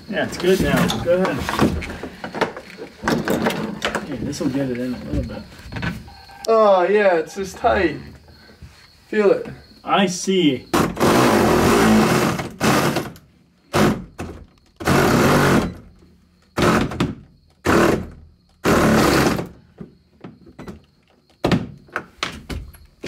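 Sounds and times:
power tool bursts: 0:10.8 - 0:14.0, 0:14.8 - 0:15.8, 0:17.6 - 0:19.5.

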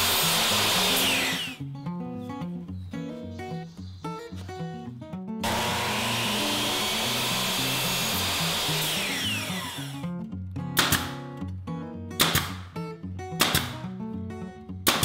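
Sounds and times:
power miter saw whining: 0:00.0 - 0:01.6, 0:05.4 - 0:10.0
background music: 0:05.2 - 0:15.0
nail gun snaps: 0:10.8 - 0:11.3, 0:12.2 - 0:12.7, 0:13.4 - 0:13.9.

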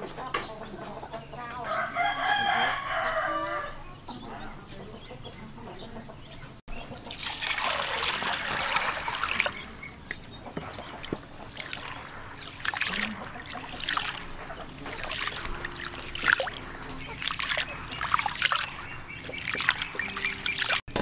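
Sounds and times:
water splashing in a basin: 0:06.7 - 0:21.0.

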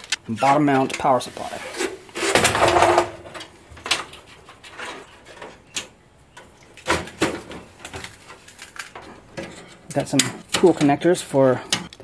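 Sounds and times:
metal panel scraping: 0:00.4 - 0:03.4.

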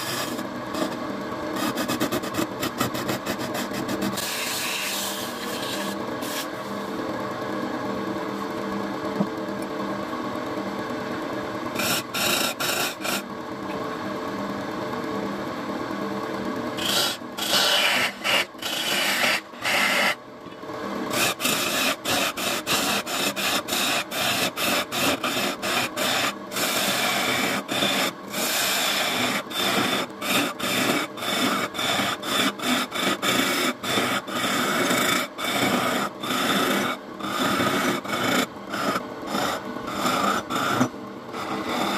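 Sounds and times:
turning tool cutting spinning wood: 0:00.0 - 0:01.0, 0:11.7 - 0:13.3, 0:16.8 - 0:20.2, 0:21.0 - 0:41.9
lathe motor hum: 0:00.0 - 0:41.9.

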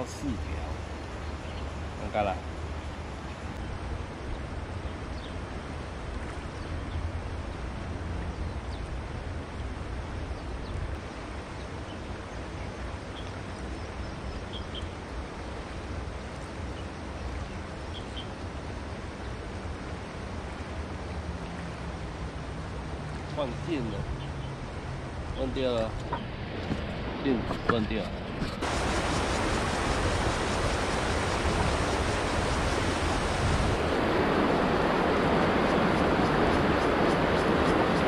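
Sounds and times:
flowing river water: 0:00.0 - 0:38.0
wind rumble on microphone: 0:00.0 - 0:38.0.

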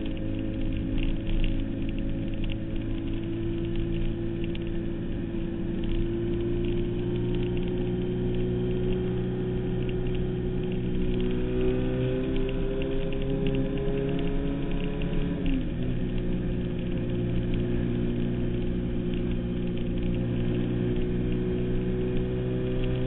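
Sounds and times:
motorcycle engine running hard: 0:05.4 - 0:23.0.

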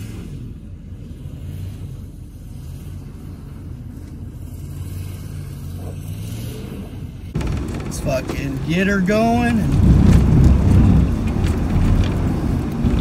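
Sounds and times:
diesel truck engine droning: 0:07.1 - 0:13.0.

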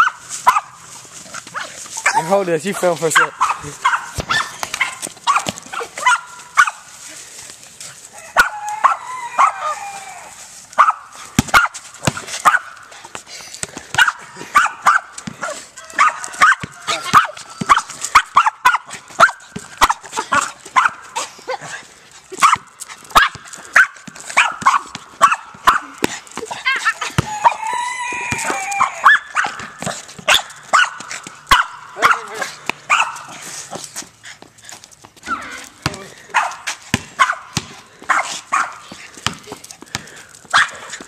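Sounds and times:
dog barking sharply: 0:03.2 - 0:06.8, 0:30.3 - 0:33.3, 0:36.3 - 0:36.6, 0:37.2 - 0:37.5, 0:38.1 - 0:38.8.

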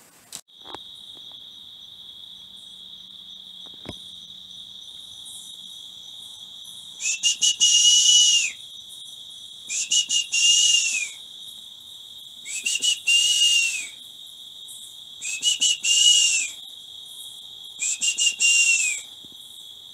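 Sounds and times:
high whistling bird call: 0:07.0 - 0:08.6, 0:09.7 - 0:11.2, 0:12.4 - 0:14.0, 0:15.2 - 0:16.6, 0:17.8 - 0:19.1.

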